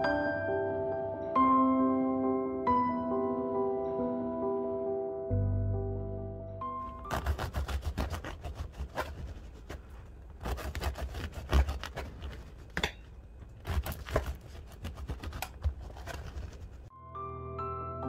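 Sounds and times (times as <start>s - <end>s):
knife sawing through bread crust: 7.1s - 12.8s, 13.6s - 16.9s.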